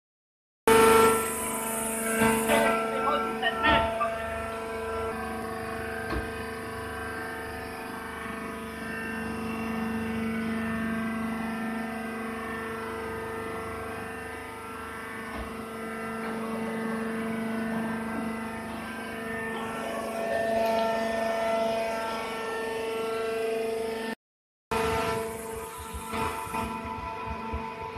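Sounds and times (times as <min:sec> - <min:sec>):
hydraulic press humming: 0:00.7 - 0:24.0, 0:24.7 - 0:27.9.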